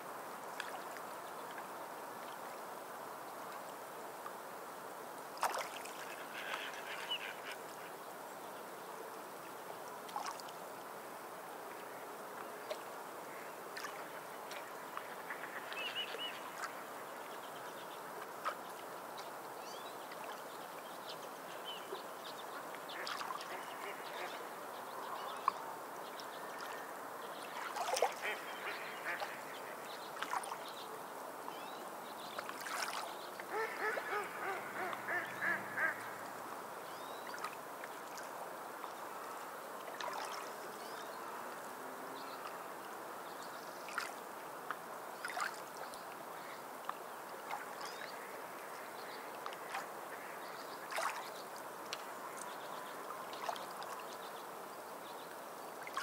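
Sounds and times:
bird calling: 0:33.5 - 0:36.3.

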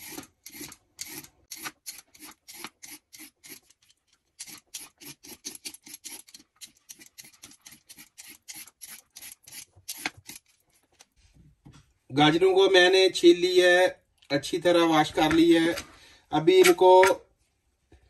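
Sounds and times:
peeler scraping carrot skin: 0:00.0 - 0:11.1.

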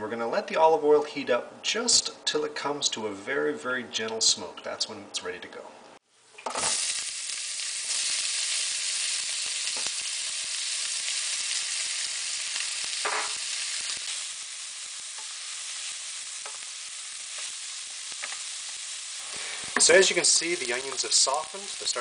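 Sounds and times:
onions sizzling in oil: 0:06.5 - 0:22.0
wooden spoon stirring in pan: 0:14.3 - 0:22.0.

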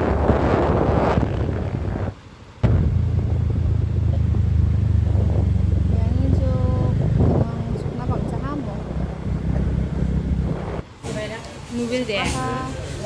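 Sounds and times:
vehicle engine humming while driving: 0:00.0 - 0:11.0
road noise: 0:00.0 - 0:13.0
person speaking: 0:05.9 - 0:09.6.

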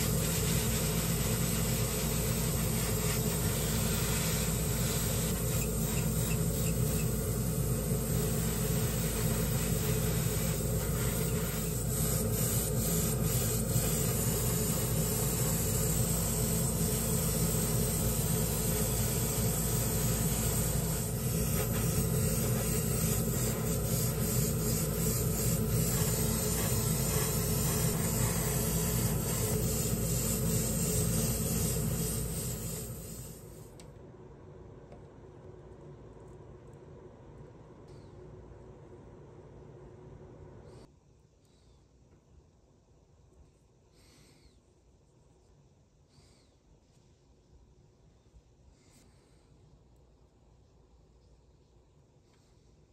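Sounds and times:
airbrush spraying hiss: 0:00.0 - 0:33.8.

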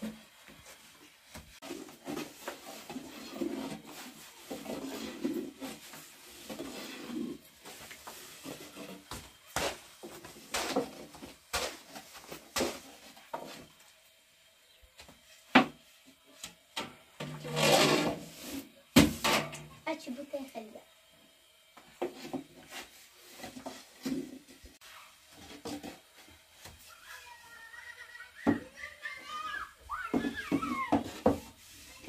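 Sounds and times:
rolling pin rubbing dough: 0:01.6 - 0:13.7.

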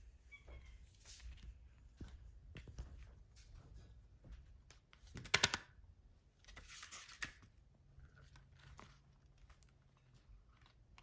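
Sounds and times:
book pages rustling: 0:06.4 - 0:11.0.

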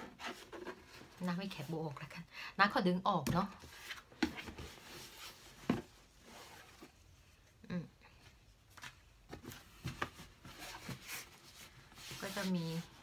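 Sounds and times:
cardboard scraping and rustling: 0:00.0 - 0:01.5, 0:09.4 - 0:13.0.

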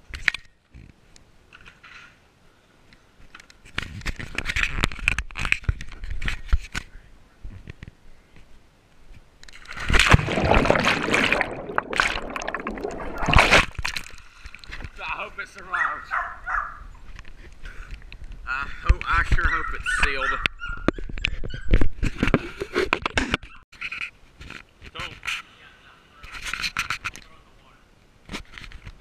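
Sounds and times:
underwater rushing and bubbling: 0:09.6 - 0:14.9
loud splash into pool: 0:09.8 - 0:14.0.

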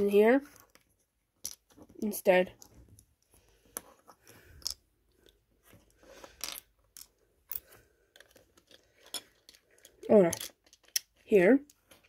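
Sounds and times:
plastic bricks clicking and rattling: 0:06.3 - 0:12.0.

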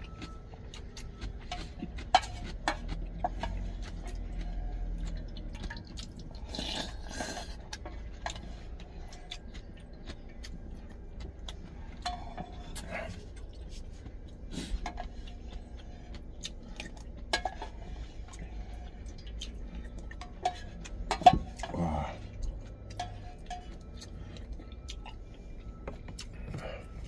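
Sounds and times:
chewing: 0:00.0 - 0:27.0
low steady hum: 0:00.0 - 0:27.0
noodles slurped: 0:02.5 - 0:07.8.

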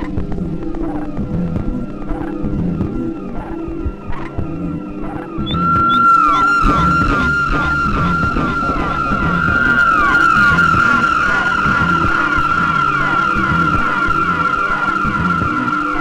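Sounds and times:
regular low pulse: 0:00.0 - 0:16.0
held high synth tone: 0:05.4 - 0:16.0.

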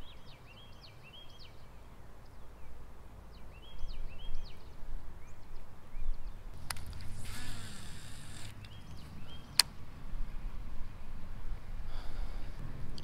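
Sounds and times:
fishing reel spool spinning: 0:06.6 - 0:08.7.

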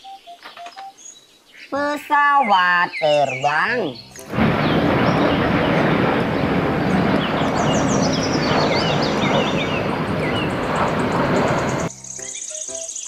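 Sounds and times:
birds chirping: 0:00.0 - 0:13.0
jet engine noise: 0:04.2 - 0:11.9.

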